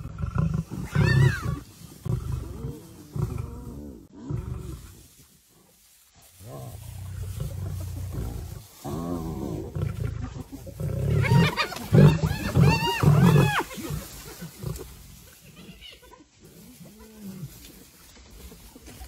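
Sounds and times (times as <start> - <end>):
lions growling and snarling: 0.0 - 5.0, 6.4 - 15.3.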